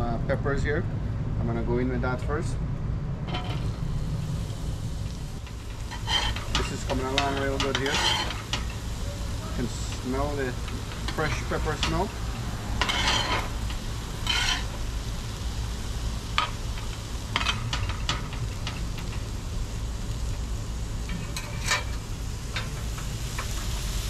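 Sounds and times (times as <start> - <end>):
metal spatulas scraping a griddle: 3.3 - 3.7, 5.5 - 9.0, 12.7 - 14.8, 16.3 - 19.2, 21.0 - 23.7
vegetables sizzling on a griddle: 3.3 - 24.0.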